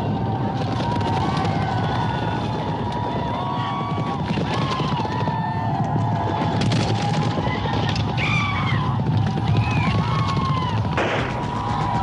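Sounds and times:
horses galloping: 0.0s - 12.0s
gunshots: 10.8s - 12.0s.

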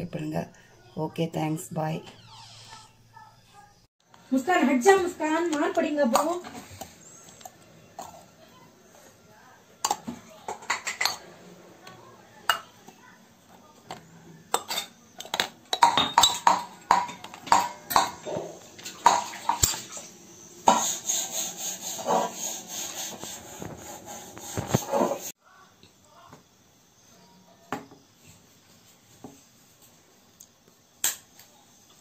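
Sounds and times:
rough handling noise: 21.8s - 25.3s.

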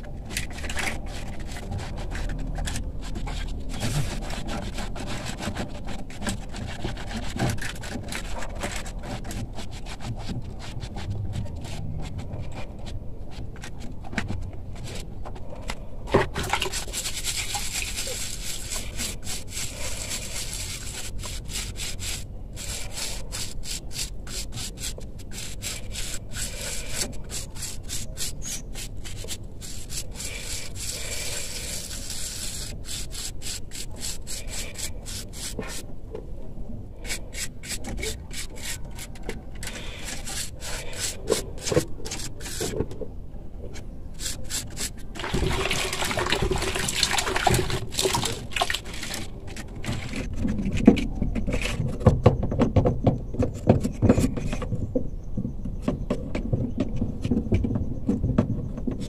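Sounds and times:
hands scrubbing wet rubber plug: 0.0s - 35.9s, 36.9s - 42.9s, 44.1s - 52.0s
water splashing into bucket: 45.2s - 50.0s.

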